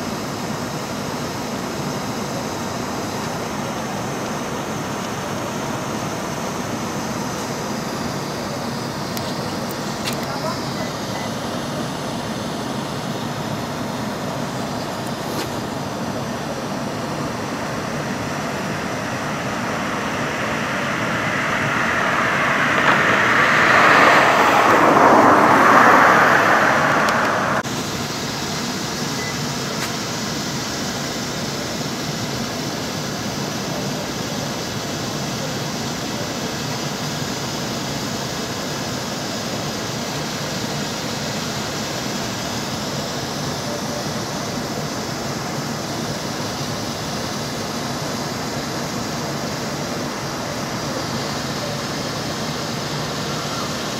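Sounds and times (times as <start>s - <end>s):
traffic noise: 18.6s - 27.7s
vehicle passing: 19.4s - 27.6s.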